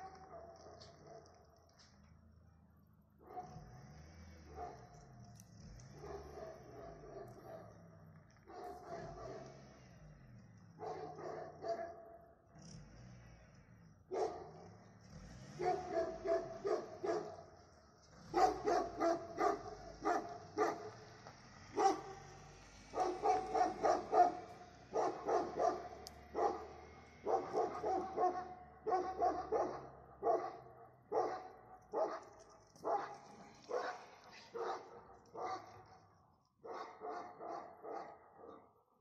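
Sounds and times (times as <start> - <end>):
dog barking: 0.0 - 1.4, 3.2 - 3.7, 4.4 - 5.0, 5.9 - 7.8, 8.5 - 9.6, 10.8 - 12.3, 14.1 - 14.6, 15.6 - 17.5, 18.3 - 21.0, 21.7 - 22.2, 22.9 - 38.8.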